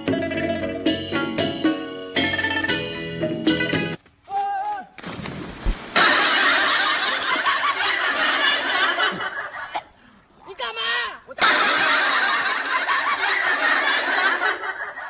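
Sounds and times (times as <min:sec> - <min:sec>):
music: 0:00.0 - 0:04.0
water splashing and churning: 0:05.0 - 0:08.3.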